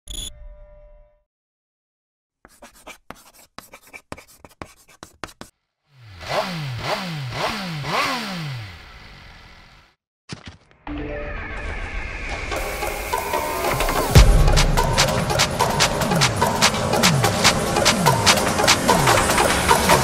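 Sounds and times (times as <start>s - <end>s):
pen scratching: 2.4s - 5.5s
motorcycle engine revving: 5.9s - 10.0s.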